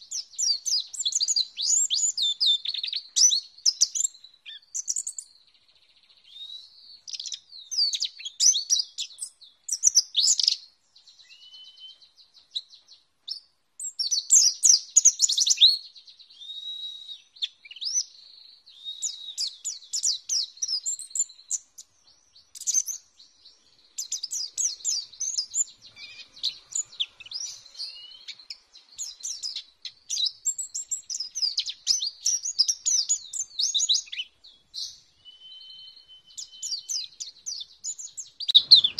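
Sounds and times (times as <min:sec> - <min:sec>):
bird twittering: 0:13.9 - 0:38.9.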